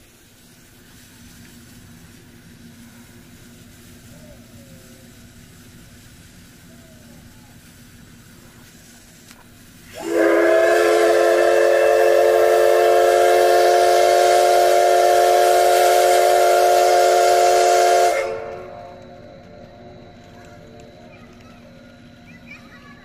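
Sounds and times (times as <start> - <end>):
steam hissing: 0.0 - 23.0
steam locomotive whistle: 9.9 - 19.0.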